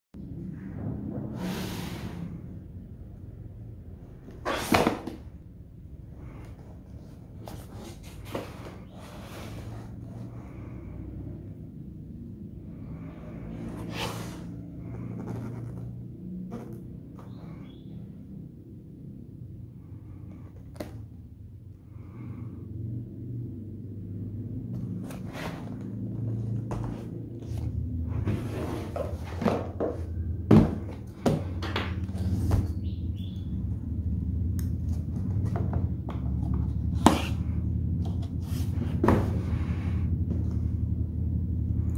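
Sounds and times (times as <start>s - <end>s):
steady low hum: 5.2s - 41.9s
cardboard box scraping and rubbing: 7.0s - 10.3s, 13.6s - 15.9s, 25.0s - 30.0s.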